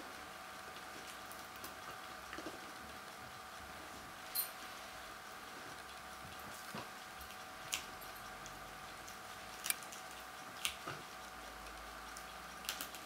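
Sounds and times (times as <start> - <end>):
faint steady hum: 0.0 - 13.0
dog teeth clicking on bone: 6.4 - 13.0.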